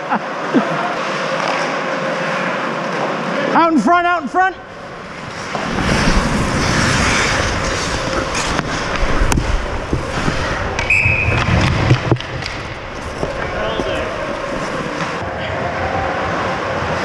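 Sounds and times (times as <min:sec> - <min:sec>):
skates scraping ice: 0:00.9 - 0:03.5, 0:04.7 - 0:15.2
hockey sticks clacking on puck: 0:07.3 - 0:15.2.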